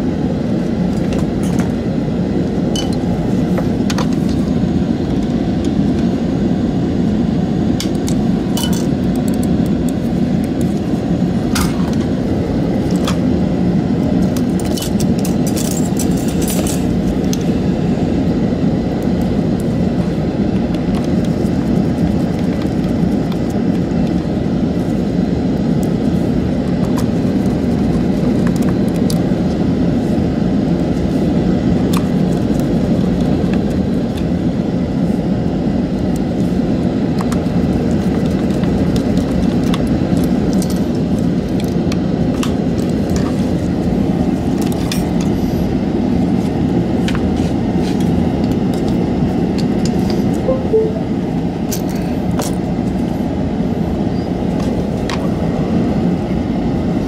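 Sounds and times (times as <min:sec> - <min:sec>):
steady low rumble: 0:00.0 - 0:41.6.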